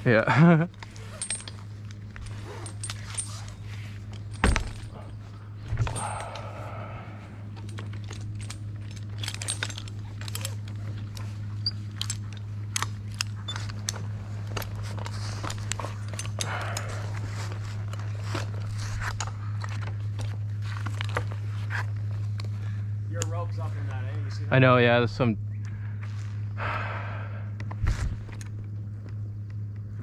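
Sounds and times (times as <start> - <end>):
low hum: 0.0 - 30.0
metal gear clinking: 0.4 - 6.9, 7.5 - 21.9.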